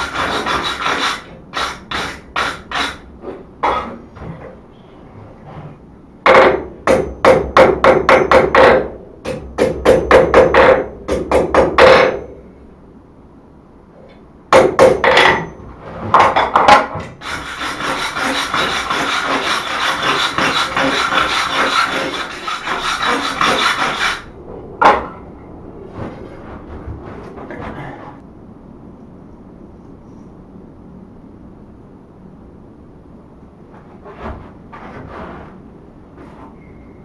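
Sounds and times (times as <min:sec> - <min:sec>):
brush scrubbing steel bar: 0:17.2 - 0:24.3.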